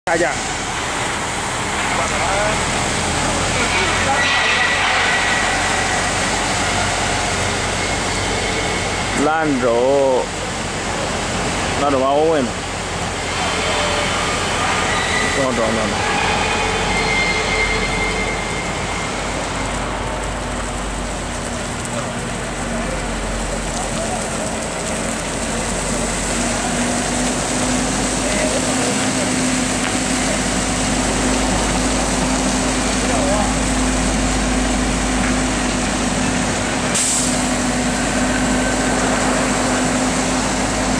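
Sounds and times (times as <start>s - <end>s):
truck diesel engine running: 18.5s - 40.9s
air brake hiss: 37.0s - 37.5s.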